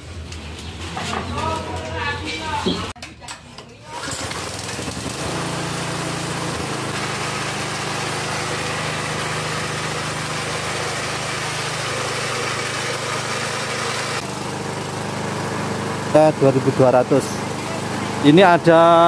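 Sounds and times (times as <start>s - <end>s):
small gasoline engine running: 3.9s - 19.0s.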